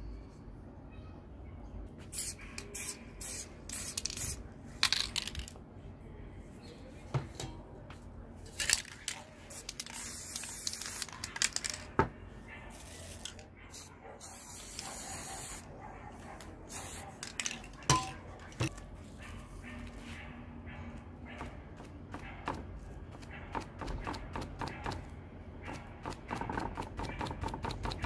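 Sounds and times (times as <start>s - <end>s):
spray paint can hissing: 2.1s - 5.5s, 9.5s - 11.8s, 12.7s - 15.6s, 16.7s - 17.6s.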